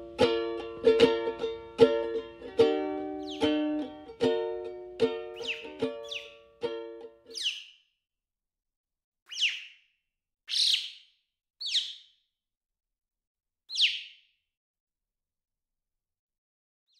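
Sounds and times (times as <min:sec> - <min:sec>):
bird calling: 0:03.2 - 0:03.8, 0:05.3 - 0:06.4, 0:07.3 - 0:07.8, 0:09.3 - 0:09.8, 0:10.5 - 0:11.0, 0:11.6 - 0:12.1, 0:13.7 - 0:14.2.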